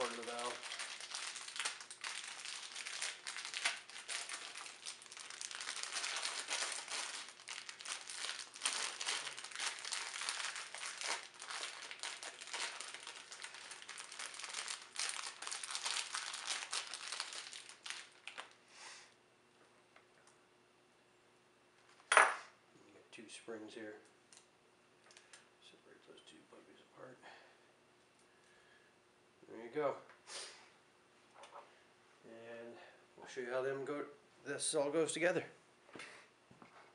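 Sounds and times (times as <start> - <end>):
gloved hands crinkling and rustling: 0.0 - 18.6.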